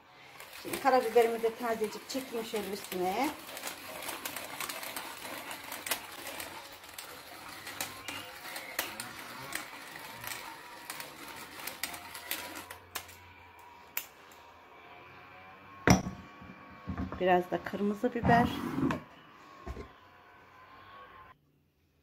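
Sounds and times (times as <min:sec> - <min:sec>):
pepper mill grinding: 0:00.0 - 0:14.5.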